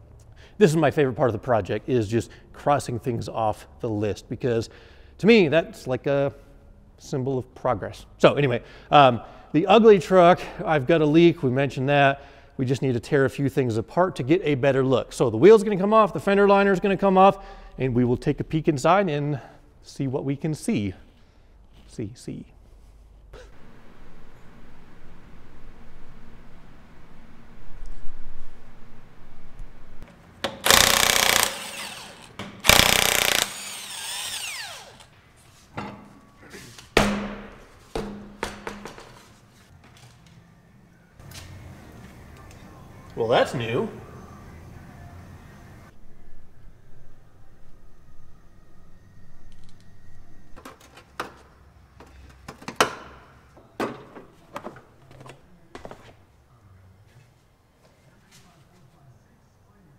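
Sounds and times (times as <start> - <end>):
impact wrench hammering: 30.4 - 35.1
motor winding down whine: 30.6 - 35.1.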